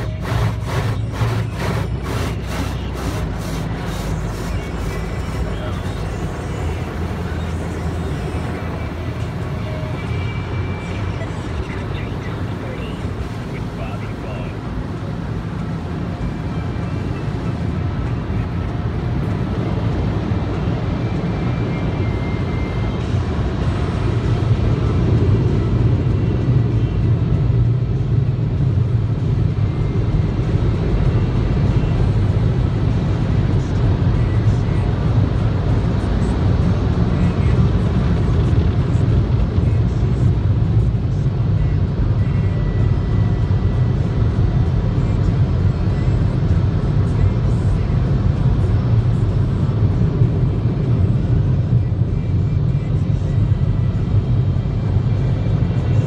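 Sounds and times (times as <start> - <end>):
wash brushes scrubbing car: 0.0 - 5.4
water spray on car: 0.0 - 5.4.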